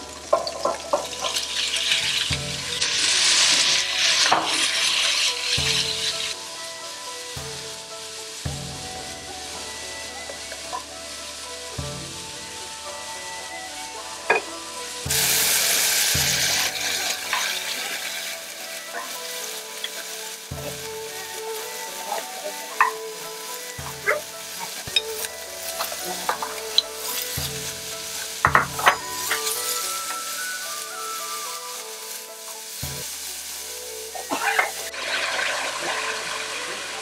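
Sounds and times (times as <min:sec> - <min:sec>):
beef sizzling in a wok: 0:00.0 - 0:37.0
spatula scraping a pan: 0:14.3 - 0:35.5.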